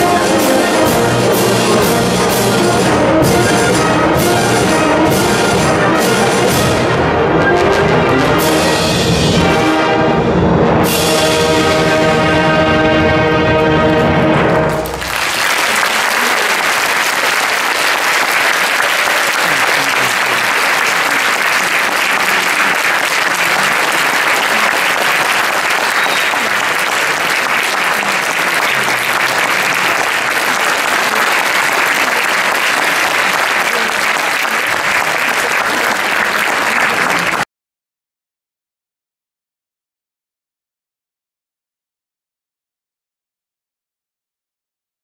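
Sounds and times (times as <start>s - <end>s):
audience applauding: 14.4s - 37.5s.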